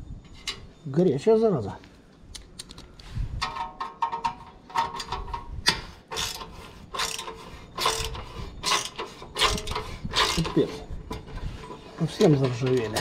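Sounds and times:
ratcheting hand tool: 3.4s - 13.0s.

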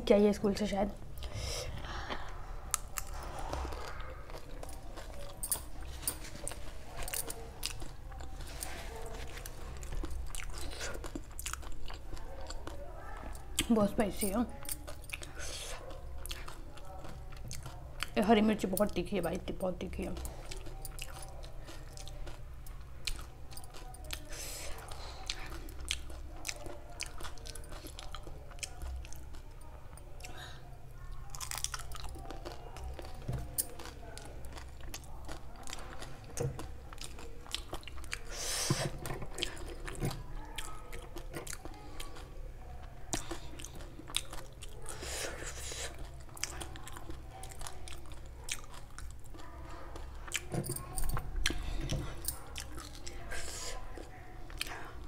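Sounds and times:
crunchy food chewing: 1.2s - 13.7s, 14.5s - 18.2s, 20.2s - 55.0s.

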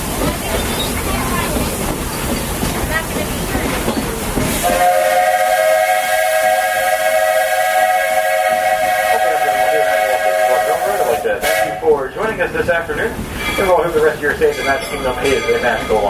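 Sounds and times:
train rumbling: 0.0s - 16.0s
steam locomotive whistle: 4.6s - 11.9s.

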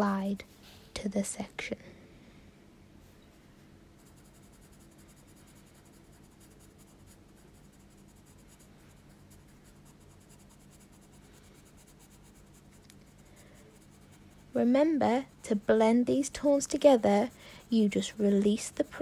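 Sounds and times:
pencil scratching on paper: 4.0s - 19.0s.

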